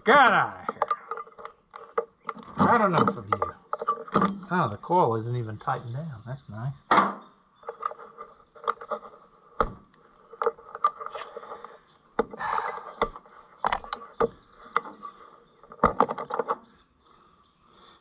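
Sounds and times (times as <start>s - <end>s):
sharp ringing clicks and knocks: 0.5s - 4.7s, 6.8s - 16.8s.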